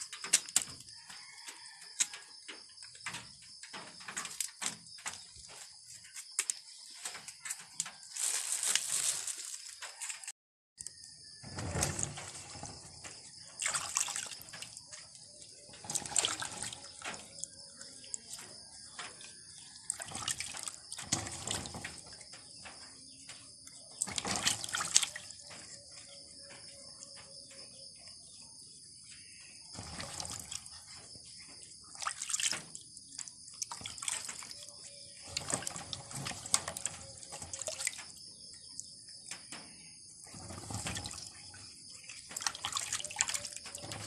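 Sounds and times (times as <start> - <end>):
water sloshing in a basin: 11.4 - 28.4, 29.0 - 44.0.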